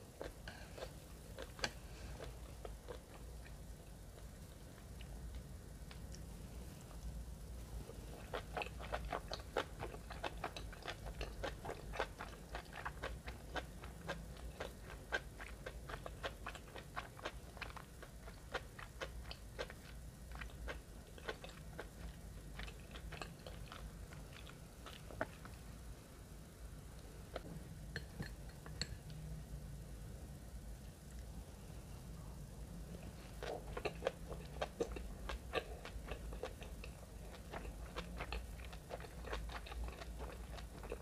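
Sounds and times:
wet chewing clicks and smacks: 8.1s - 25.6s, 33.3s - 41.0s.

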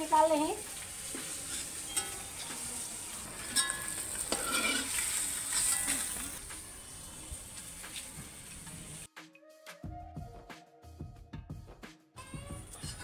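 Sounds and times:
hot oil sizzling: 0.0s - 9.1s
metal spatula scraping a pan: 0.8s - 6.4s, 12.6s - 13.0s.

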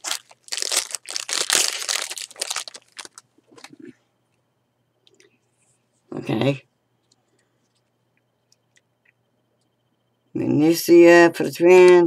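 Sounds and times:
plastic wrapper tearing and crinkling: 0.0s - 3.8s.

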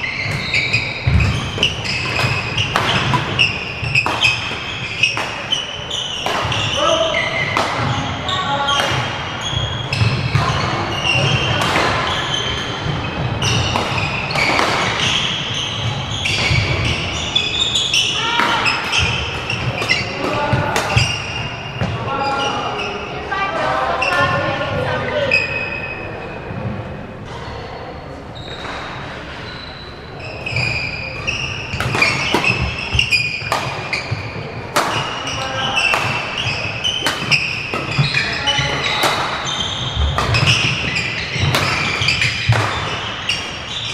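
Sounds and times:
shoes squeaking on wooden floor: 0.0s - 8.7s, 28.4s - 43.9s
racket hitting shuttlecock: 0.2s - 8.1s, 8.7s - 9.2s, 9.9s - 12.4s, 13.4s - 16.9s, 18.3s - 21.4s, 30.7s - 43.6s.

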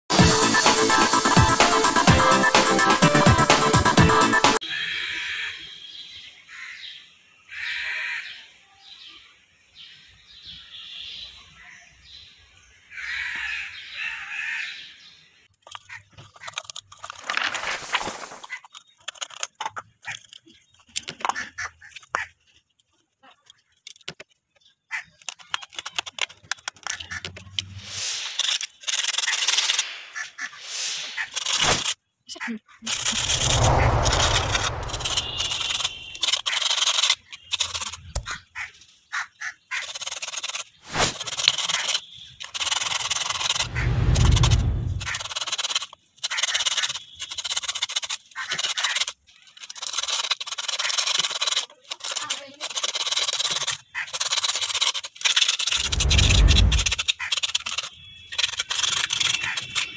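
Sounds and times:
sandpaper scratching coconut shell: 25.0s - 32.0s, 32.9s - 59.9s.

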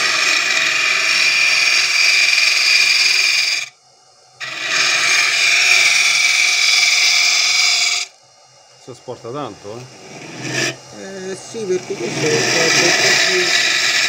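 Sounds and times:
lathe tool scraping wood: 0.0s - 3.7s, 4.4s - 8.1s, 9.8s - 14.0s.

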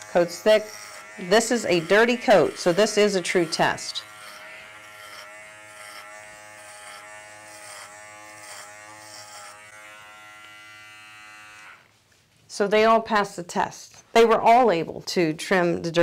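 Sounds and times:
electric dog clipper humming: 0.0s - 11.9s.

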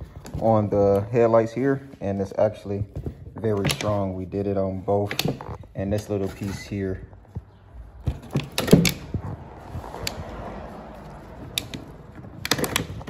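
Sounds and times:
hard plastic clicking: 11.4s - 13.0s.

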